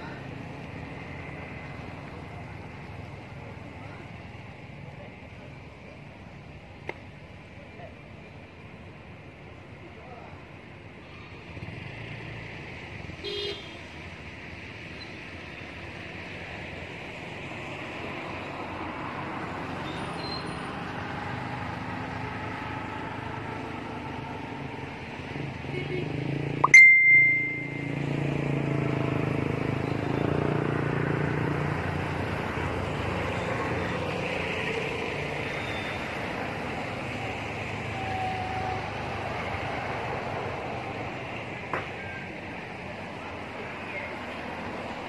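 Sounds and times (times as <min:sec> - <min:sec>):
brief high steady tone: 0:26.6 - 0:28.1.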